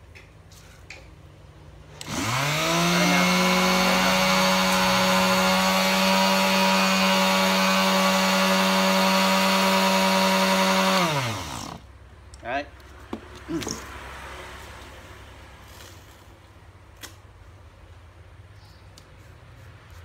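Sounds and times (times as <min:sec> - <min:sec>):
electric sander motor humming: 0:02.0 - 0:11.8.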